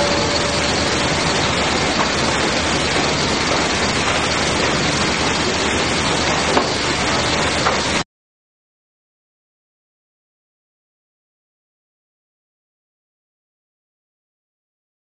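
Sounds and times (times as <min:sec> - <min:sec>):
sawmill machinery din: 0:00.0 - 0:08.0.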